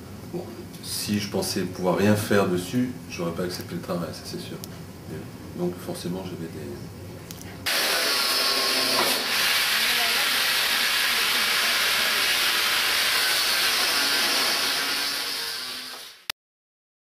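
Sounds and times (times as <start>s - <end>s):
metal cutting hiss: 7.7s - 16.3s.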